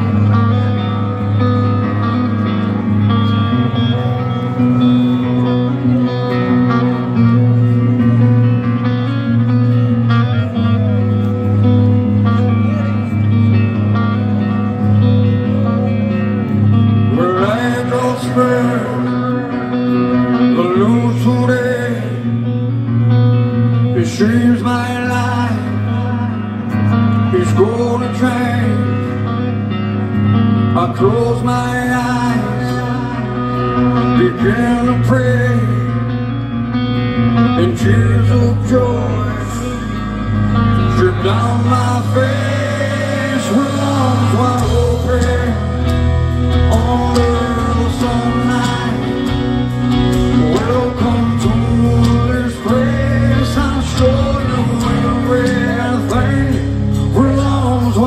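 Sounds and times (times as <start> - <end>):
live rock band playing: 0.0 - 58.0
man singing: 12.2 - 29.7, 30.6 - 36.5, 37.1 - 58.0.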